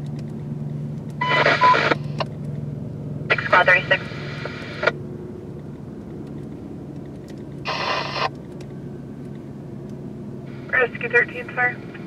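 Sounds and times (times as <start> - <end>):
low hum of idling vehicles: 0.0 - 12.0
police radio static burst: 1.2 - 2.1, 3.3 - 4.9, 7.7 - 8.3.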